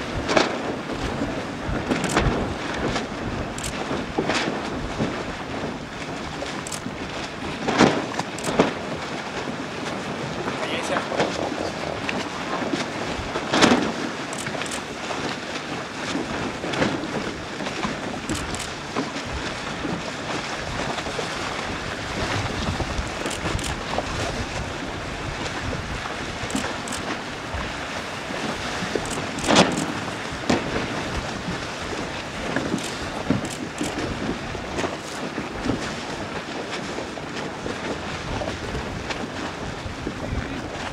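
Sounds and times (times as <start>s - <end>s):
water splashing and lapping: 0.0s - 40.9s
wind buffeting microphone: 0.0s - 40.9s.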